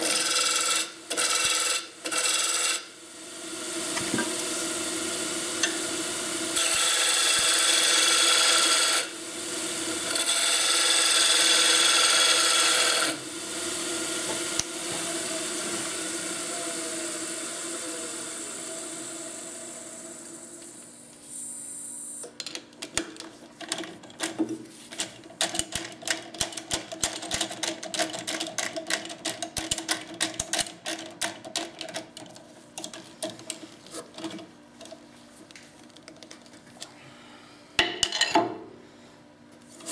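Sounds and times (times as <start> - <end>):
lathe humming: 0.0 - 21.1
turning tool cutting wood hiss: 0.0 - 22.2.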